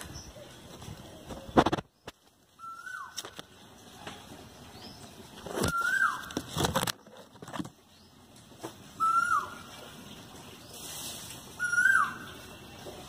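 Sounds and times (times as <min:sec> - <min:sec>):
leaves rustling against microphone: 0:00.0 - 0:13.0
koel whistled calls: 0:05.6 - 0:06.3, 0:09.0 - 0:09.6, 0:11.6 - 0:12.4.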